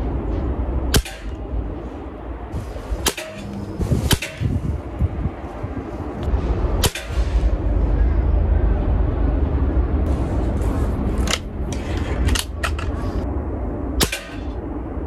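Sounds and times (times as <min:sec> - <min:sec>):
air rifle cracks: 0:14.0 - 0:14.5.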